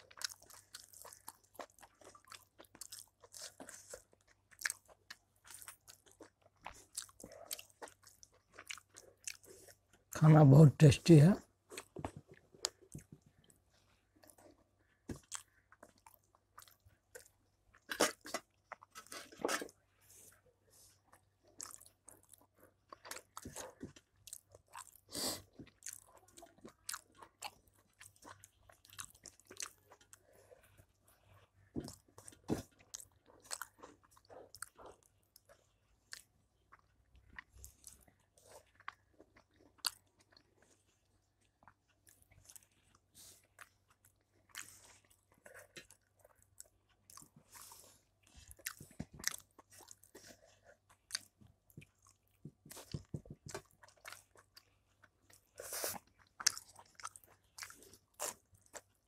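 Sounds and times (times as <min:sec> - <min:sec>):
person chewing and mouth smacking: 0:00.0 - 0:10.2, 0:11.7 - 0:59.0.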